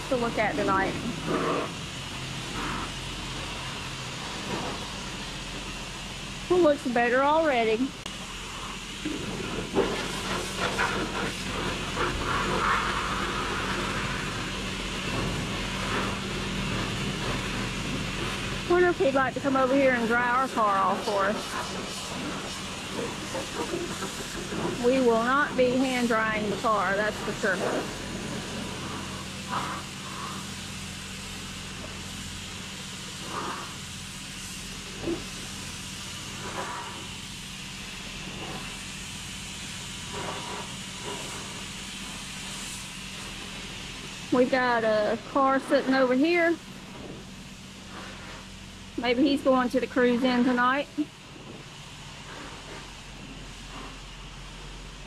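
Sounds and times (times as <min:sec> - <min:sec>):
pressure washer spraying water: 0:00.0 - 0:55.0
pump humming: 0:00.0 - 0:55.0.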